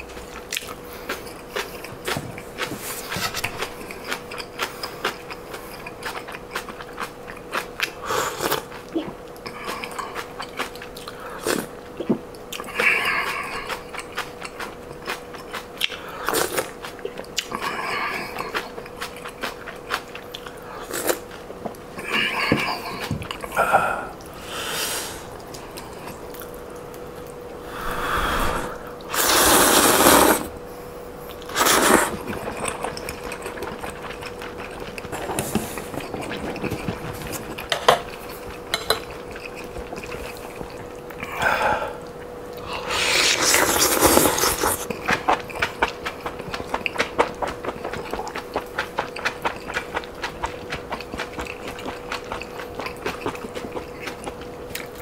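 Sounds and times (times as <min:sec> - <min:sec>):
faint steady hum: 0:00.0 - 0:55.0
slurping noodles: 0:27.7 - 0:30.5, 0:31.5 - 0:34.1, 0:42.6 - 0:45.0
wet chewing and lip smacks: 0:43.4 - 0:55.0.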